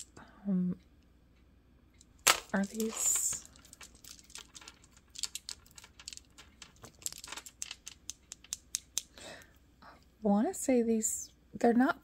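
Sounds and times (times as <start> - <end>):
beads clicking together: 2.0 - 9.2.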